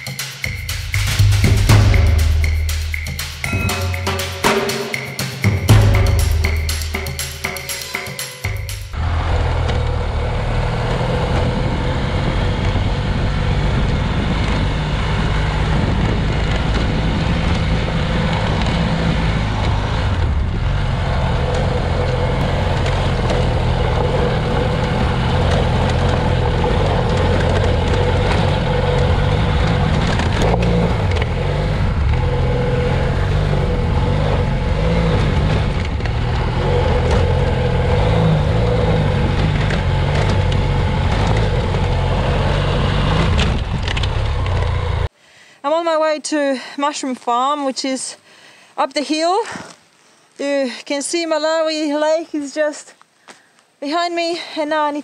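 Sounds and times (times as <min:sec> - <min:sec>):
motorcycle engine revving: 0:00.0 - 0:45.1
wind and tyre noise: 0:08.9 - 0:45.1.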